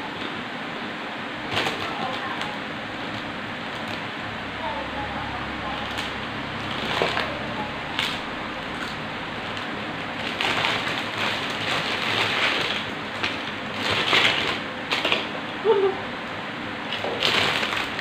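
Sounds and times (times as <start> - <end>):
plastic snack bag crinkling: 5.7 - 15.3, 16.9 - 18.0.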